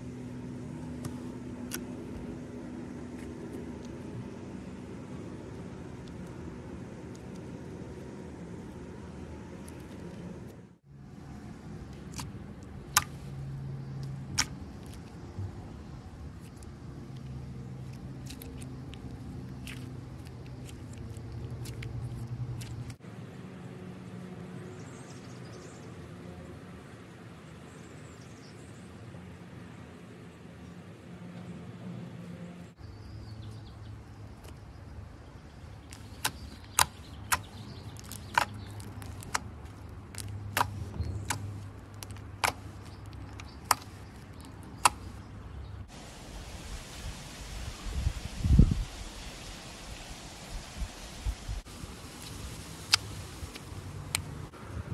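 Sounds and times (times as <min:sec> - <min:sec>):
slime stretching and folding: 0:11.8 - 0:23.0, 0:35.7 - 0:45.2, 0:51.9 - 0:54.3
sticky slime clicks and pops: 0:35.9 - 0:39.5, 0:40.1 - 0:45.1.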